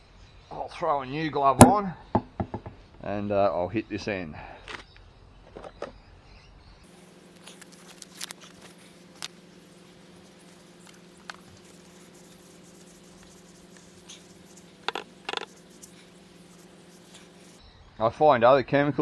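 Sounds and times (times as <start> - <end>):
small rubbery squeaks: 6.9 - 17.6
steady low hum: 6.9 - 17.6.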